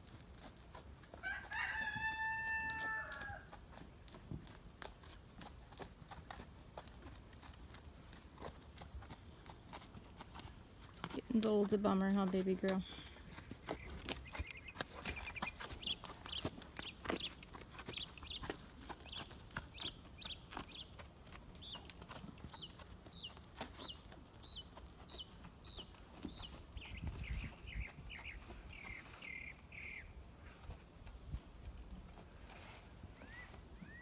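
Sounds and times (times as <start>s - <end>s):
bird chirping: 12.8s - 21.0s, 21.6s - 21.9s, 22.5s - 30.1s.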